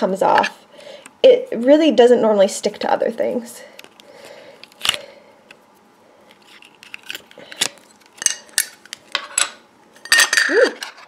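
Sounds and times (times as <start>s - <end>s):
metal tins and lids clinking: 8.2s - 11.0s.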